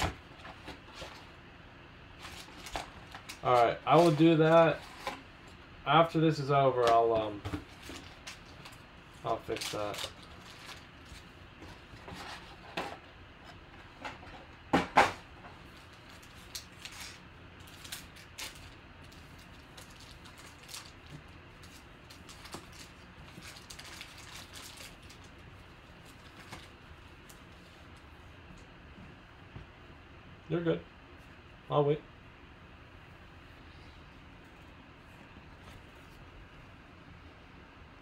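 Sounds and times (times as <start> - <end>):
foil packs crinkling: 2.2 - 5.2, 6.8 - 11.2, 15.6 - 27.5.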